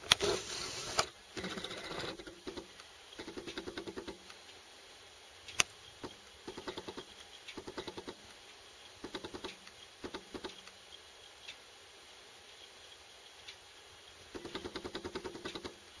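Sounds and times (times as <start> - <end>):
rapid light clicking: 0.0 - 4.4, 5.4 - 8.4, 9.0 - 10.8, 14.3 - 15.9.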